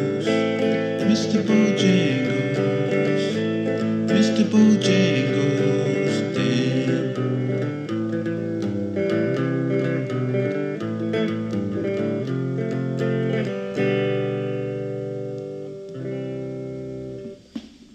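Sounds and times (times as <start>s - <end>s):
electric guitar chords ringing: 0.0s - 17.9s.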